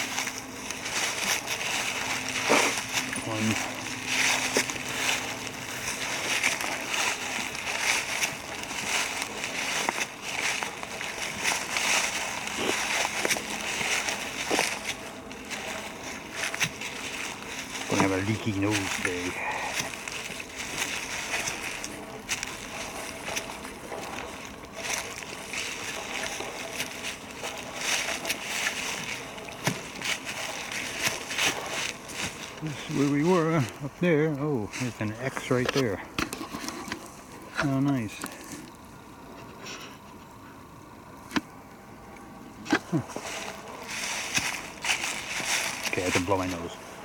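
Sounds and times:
twigs snapping underfoot: 0.0 - 33.8, 42.6 - 46.3
footsteps in dry leaves: 0.0 - 42.0, 42.6 - 47.0.

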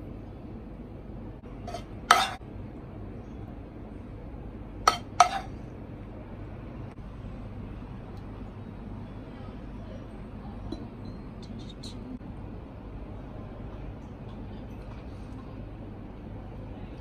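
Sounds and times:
low background hum: 0.0 - 17.0.

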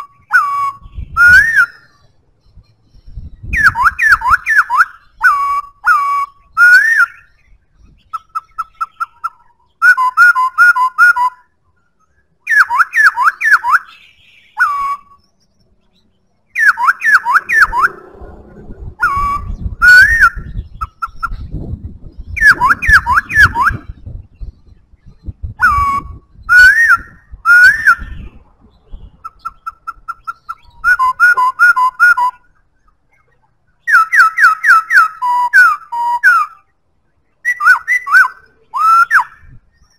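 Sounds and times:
bird singing whistled phrases: 0.0 - 18.0, 19.0 - 32.6, 33.8 - 36.7, 37.4 - 39.9
low rumble: 17.4 - 26.5.

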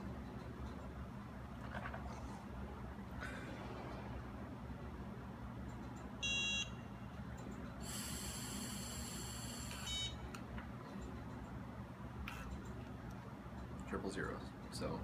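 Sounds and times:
short electronic beep: 6.2 - 6.7
high steady tone: 6.2 - 7.1, 7.8 - 10.3.

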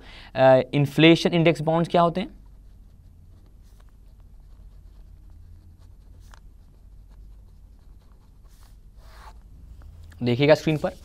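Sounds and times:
low steady hum: 0.0 - 11.0
pen scratching on paper: 2.4 - 10.0.

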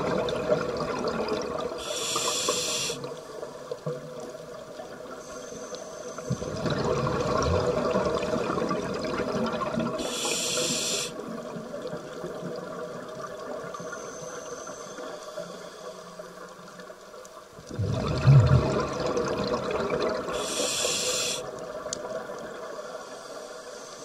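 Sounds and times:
high hiss: 1.8 - 3.1, 10.0 - 11.2, 20.3 - 21.5
regulator breathing bubbles: 10.0 - 11.2, 20.3 - 21.5.

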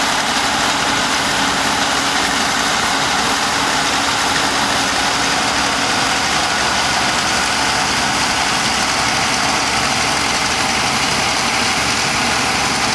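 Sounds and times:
combine harvester running: 0.0 - 12.9.

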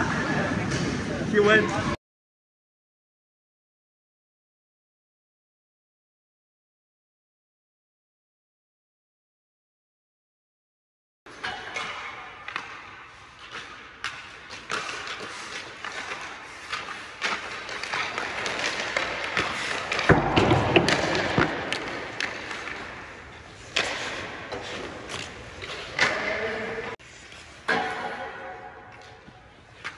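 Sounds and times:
hockey sticks striking pucks: 11.3 - 29.9
pucks knocking against boards: 11.4 - 26.4.

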